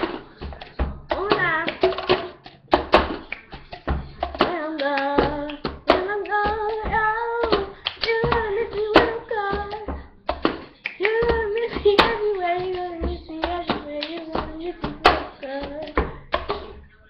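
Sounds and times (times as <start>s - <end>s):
plastic cup knocking on wooden table: 0.0s - 4.6s, 5.2s - 16.8s
hand claps: 0.0s - 16.8s
girl singing: 1.1s - 2.4s, 4.3s - 10.2s, 10.9s - 16.7s.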